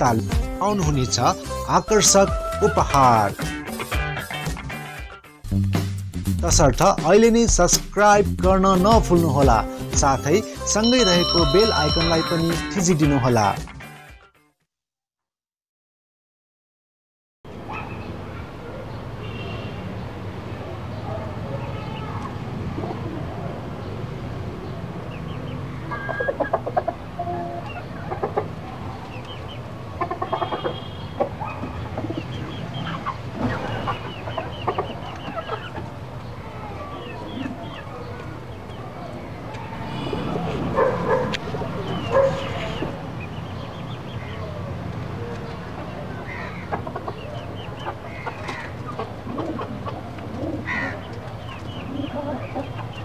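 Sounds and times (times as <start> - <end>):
chickens clucking: 25.8 - 44.1, 44.9 - 53.0.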